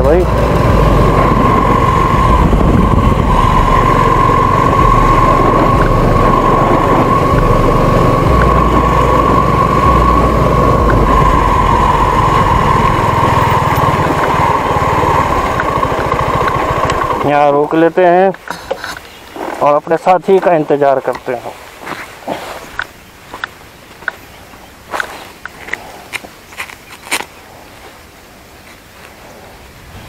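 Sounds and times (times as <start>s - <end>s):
motorcycle engine running: 0.0s - 17.8s
constant high whine: 0.0s - 30.0s.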